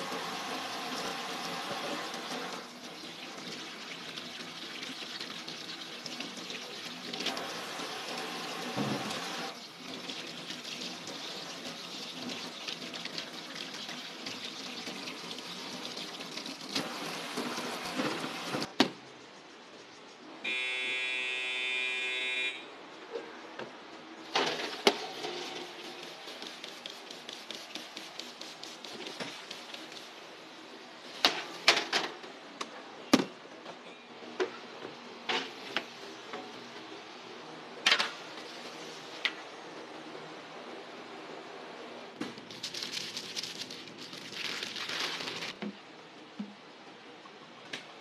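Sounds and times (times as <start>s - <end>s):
steady buzzing tone: 20.5s - 22.7s
hands rubbing under water: 25.1s - 30.2s.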